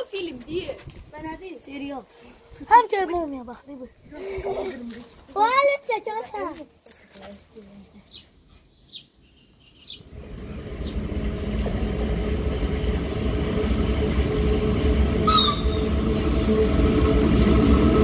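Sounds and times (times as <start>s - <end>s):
electric train rumbling: 9.9s - 18.0s.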